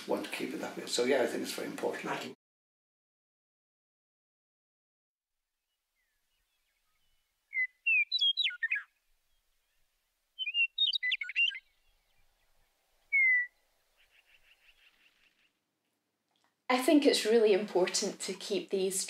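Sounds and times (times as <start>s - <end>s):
songbird singing: 5.6s - 15.7s.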